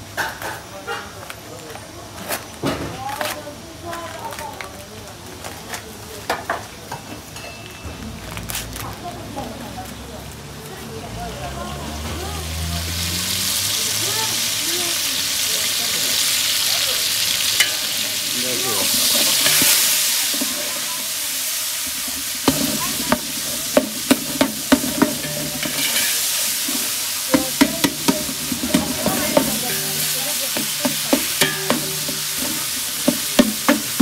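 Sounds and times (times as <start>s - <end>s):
vegetables sizzling in a pot: 8.0s - 34.0s
metal ladle scraping a pot: 18.6s - 20.9s, 21.9s - 34.0s.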